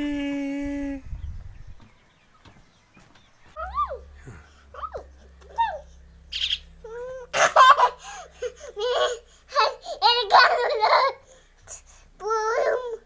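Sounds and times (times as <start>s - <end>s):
high bird calls: 1.1s - 7.1s
toddler laughing and squealing: 3.6s - 4.0s, 4.7s - 13.0s.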